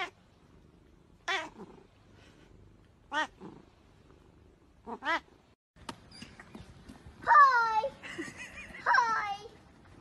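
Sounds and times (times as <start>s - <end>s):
cat meowing: 1.2s - 1.7s, 3.1s - 3.5s.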